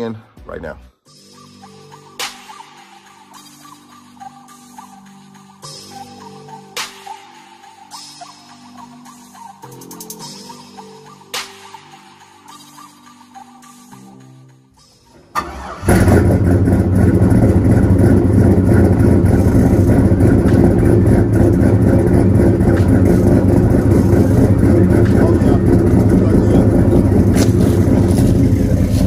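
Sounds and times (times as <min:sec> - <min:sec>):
car engine idling: 0:15.3 - 0:29.0.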